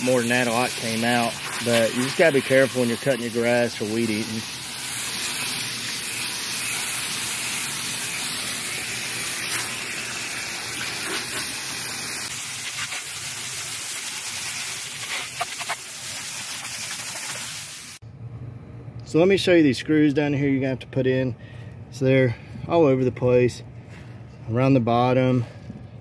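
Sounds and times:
hose spray hissing on metal fins: 0:00.0 - 0:18.0.

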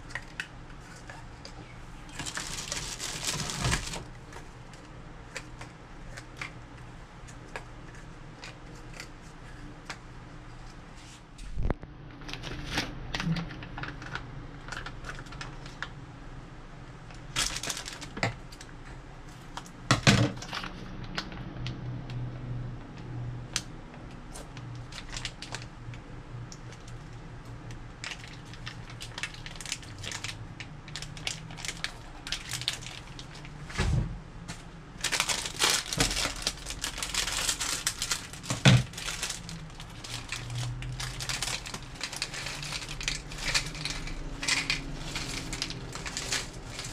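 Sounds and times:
crinkling plastic packaging: 0:00.0 - 0:06.6, 0:11.5 - 0:16.0, 0:17.2 - 0:18.7, 0:19.4 - 0:21.7, 0:24.3 - 0:33.7, 0:35.0 - 0:46.9.

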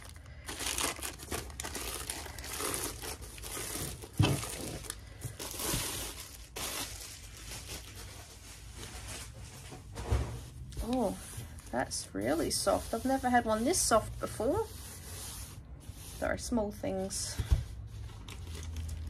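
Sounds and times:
plastic wrapping crinkling: 0:00.0 - 0:09.7, 0:18.0 - 0:19.0.

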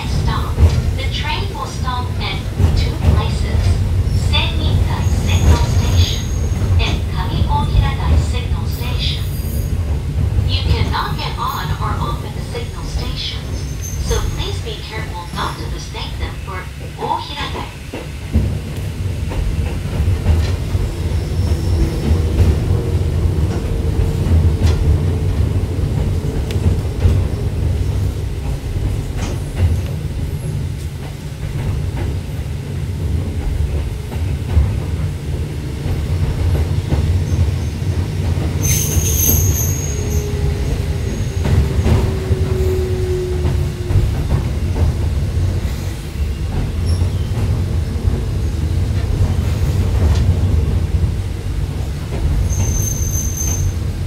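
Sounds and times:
train wheels rumbling: 0:00.0 - 0:54.0
train wheels squealing: 0:04.9 - 0:06.8, 0:09.1 - 0:09.8, 0:13.3 - 0:14.6, 0:21.1 - 0:22.2, 0:38.6 - 0:43.9, 0:45.8 - 0:47.5, 0:52.4 - 0:53.9.

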